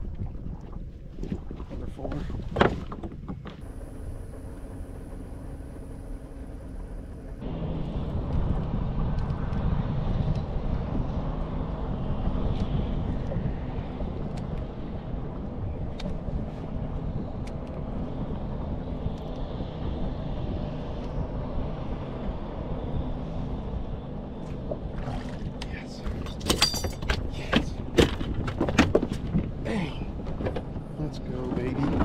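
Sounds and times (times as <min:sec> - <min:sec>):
wind on microphone: 0:07.5 - 0:32.0.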